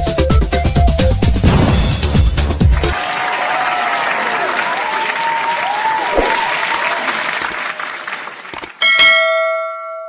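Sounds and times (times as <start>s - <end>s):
crowd applause: 2.6s - 8.8s
sharp clicks: 7.4s - 7.6s, 8.5s - 8.8s
bright bell ding: 8.8s - 10.0s.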